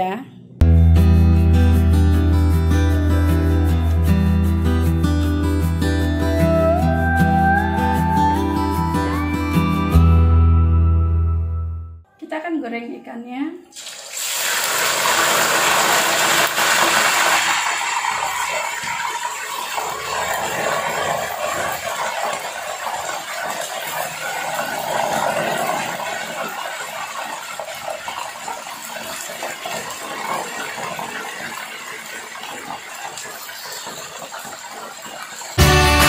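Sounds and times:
fish sizzling in hot oil: 0:13.8 - 0:21.7.

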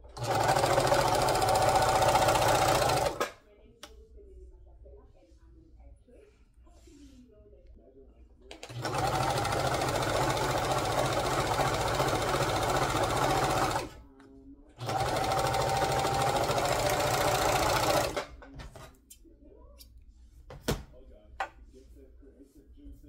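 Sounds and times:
electric sewing machine stitching: 0:00.0 - 0:03.3, 0:08.5 - 0:14.0, 0:14.8 - 0:18.3.

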